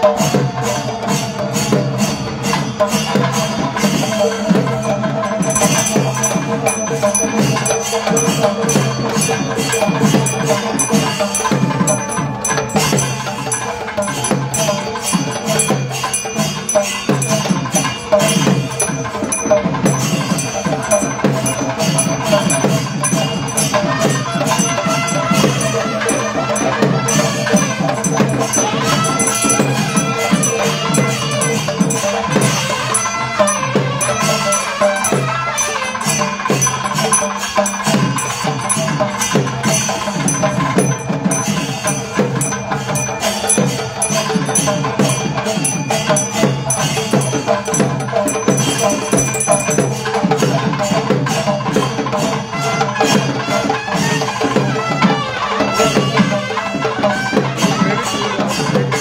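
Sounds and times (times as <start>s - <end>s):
cymbals clashing: 0.0s - 59.0s
fast drum rhythm: 0.0s - 59.0s
steady held tone: 4.6s - 50.2s.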